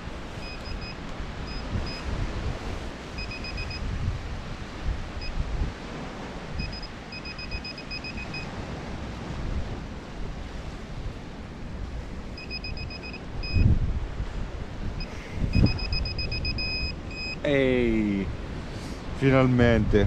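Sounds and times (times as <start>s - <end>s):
surf: 0.0s - 20.0s
wind on microphone: 0.0s - 20.0s
pinpointer short high beeps: 0.4s - 2.1s, 3.2s - 3.8s, 6.6s - 8.5s, 12.4s - 13.7s, 15.0s - 17.5s.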